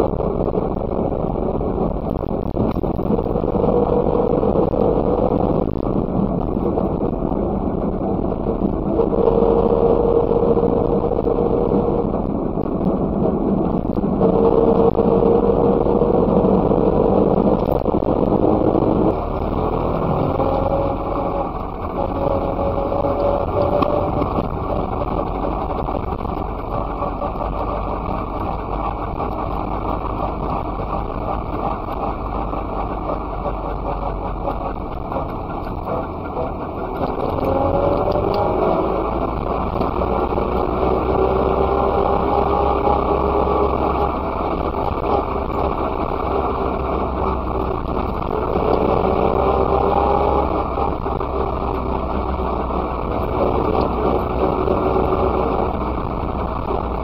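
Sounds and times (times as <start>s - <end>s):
road and wind noise: 0.0s - 57.0s
two-stroke engine running: 13.4s - 57.0s.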